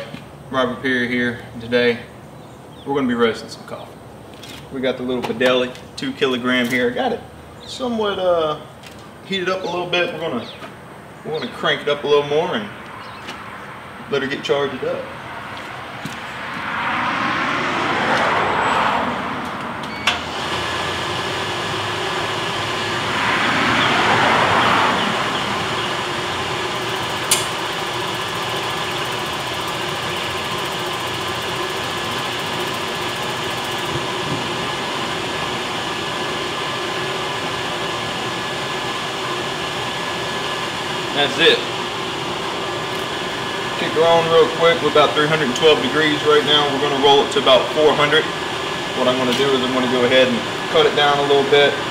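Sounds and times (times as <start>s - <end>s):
rushing burner noise: 4.0s - 51.9s
coffee roaster whirring: 14.7s - 51.9s
roaster click: 26.8s - 34.0s.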